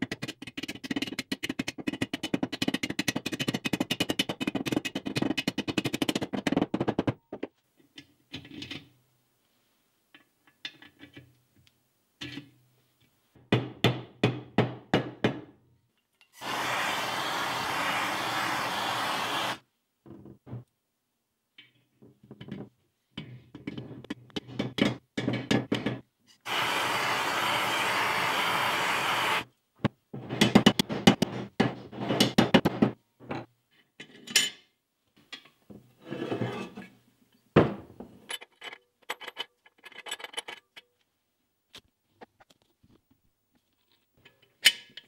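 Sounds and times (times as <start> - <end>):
blowtorch flame hissing: 16.4 - 19.6, 26.5 - 29.5.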